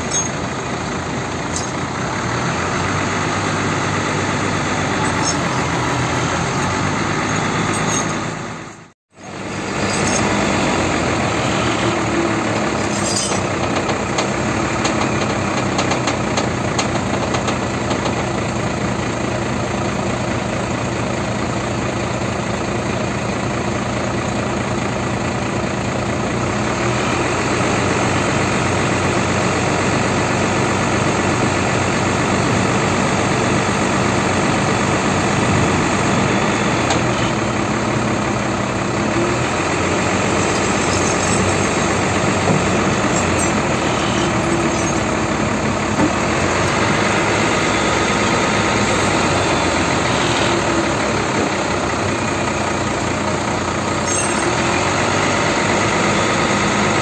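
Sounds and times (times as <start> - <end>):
crane control levers worked: 0.0 - 2.3, 3.3 - 18.4, 39.0 - 52.0
diesel truck engine running: 0.0 - 57.0.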